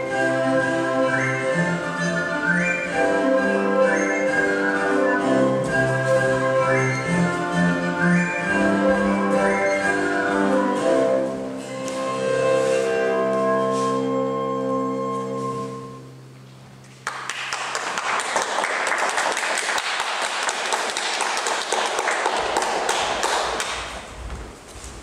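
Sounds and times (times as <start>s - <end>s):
dance music: 0.0s - 14.7s
applause: 17.0s - 24.0s.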